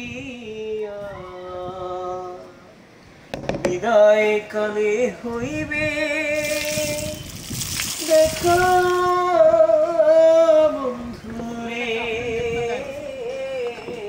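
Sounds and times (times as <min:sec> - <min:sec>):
person singing slow melody: 0:00.0 - 0:02.8, 0:08.0 - 0:14.0.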